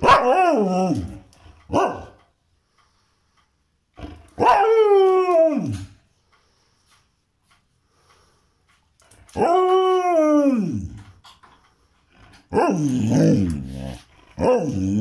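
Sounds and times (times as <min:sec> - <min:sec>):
dog yelp: 0:00.0 - 0:00.8, 0:01.7 - 0:02.2, 0:04.4 - 0:04.8
dog howling: 0:00.0 - 0:02.0, 0:04.4 - 0:06.0, 0:09.3 - 0:11.0, 0:12.5 - 0:15.0.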